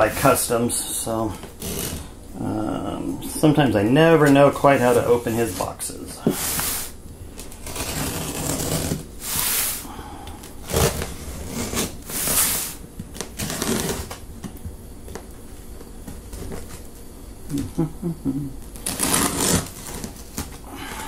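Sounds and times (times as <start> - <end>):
utility knife slicing tape: 7.6 - 9.8, 10.7 - 14.2, 18.8 - 20.1.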